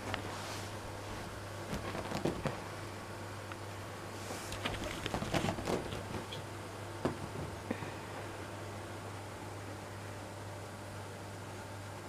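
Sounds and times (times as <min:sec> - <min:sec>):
steady low hum: 0:00.0 - 0:12.0
paws tapping and rustling on fabric: 0:01.1 - 0:02.7, 0:04.4 - 0:06.4.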